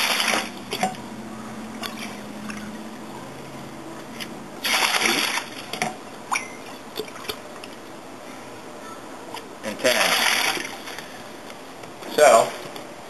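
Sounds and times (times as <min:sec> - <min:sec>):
water splashing into a bucket: 0:00.0 - 0:01.0, 0:04.6 - 0:07.4, 0:09.9 - 0:11.0.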